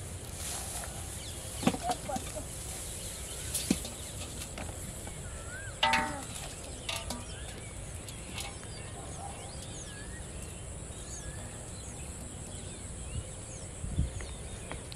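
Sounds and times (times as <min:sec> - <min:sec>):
fishing poles clicking and rustling: 0:00.8 - 0:10.6
faint bird chirps: 0:01.1 - 0:14.9
wind rumble on microphone: 0:07.3 - 0:14.9.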